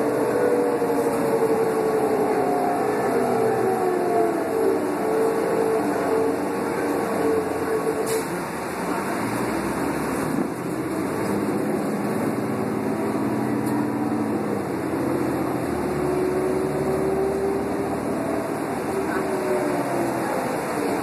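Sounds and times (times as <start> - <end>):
transmission whine rising in pitch: 0.0 - 8.0, 12.5 - 21.0
bus diesel engine drone: 0.0 - 21.0
road noise: 0.0 - 21.0.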